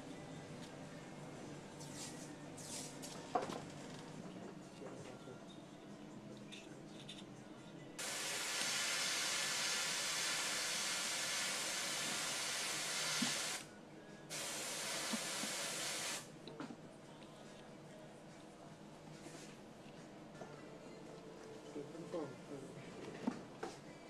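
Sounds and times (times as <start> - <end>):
compressed air hissing: 8.0 - 13.6, 14.3 - 16.3.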